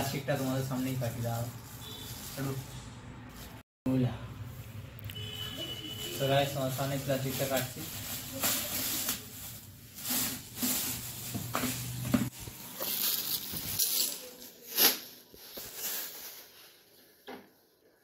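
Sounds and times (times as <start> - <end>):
plastic bag crinkling: 6.7 - 16.9.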